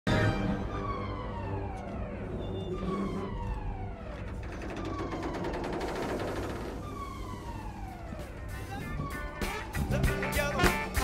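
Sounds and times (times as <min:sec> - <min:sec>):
falling wail alarm: 0:00.1 - 0:11.0
rapid rattling: 0:04.0 - 0:07.2.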